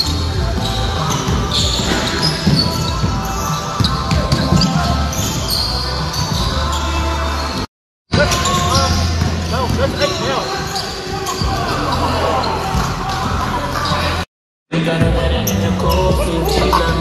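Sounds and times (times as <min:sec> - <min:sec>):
sneaker squeaks: 0:00.0 - 0:14.3
players' voices: 0:00.0 - 0:17.0
basketball dribbling: 0:00.4 - 0:05.5.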